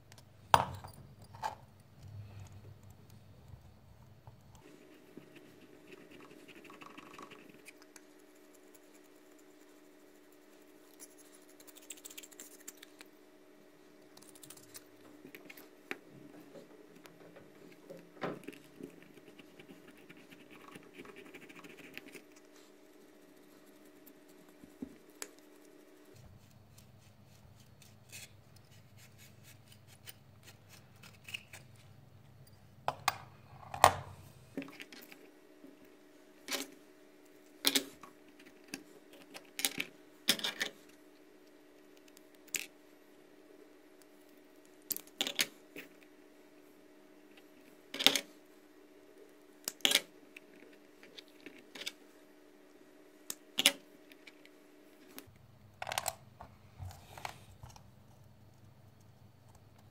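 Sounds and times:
brush scratching wooden stick: 4.6 - 13.0, 18.9 - 31.6.

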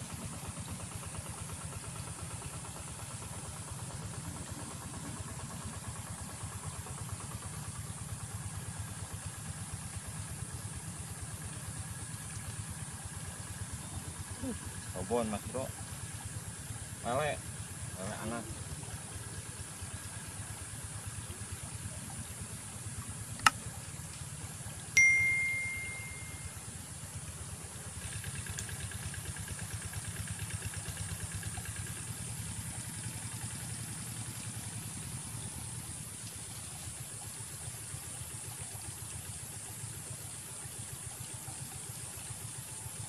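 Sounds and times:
low engine-like hum: 0.0 - 43.0
sharp click: 23.4 - 23.6
short ringing tone: 25.0 - 26.6.

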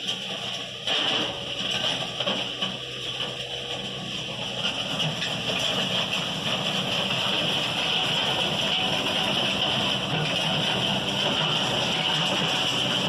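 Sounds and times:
diesel engine under load: 0.0 - 13.0.

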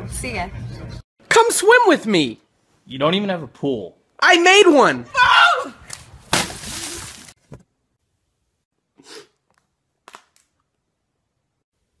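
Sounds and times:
person landing with crash: 6.2 - 7.4.

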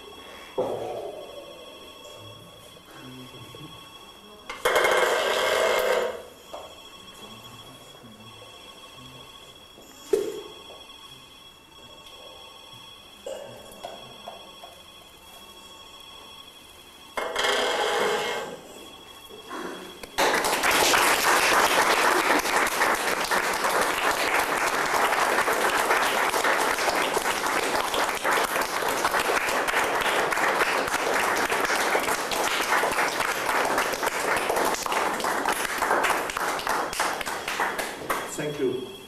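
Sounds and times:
audience applause: 20.1 - 38.5.

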